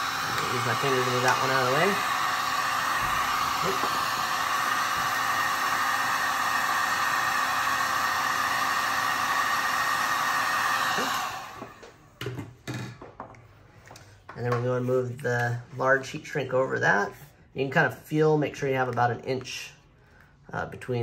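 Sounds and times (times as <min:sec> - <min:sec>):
heat gun blowing: 0:00.0 - 0:12.0.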